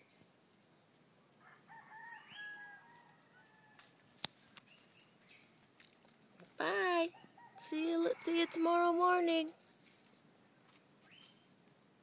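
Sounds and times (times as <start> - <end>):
rooster crowing faintly: 1.4 - 4.1.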